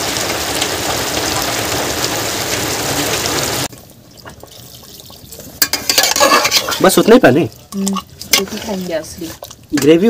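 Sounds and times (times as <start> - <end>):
curry sizzling and bubbling: 0.0 - 10.0
water pouring into pot: 0.0 - 10.0.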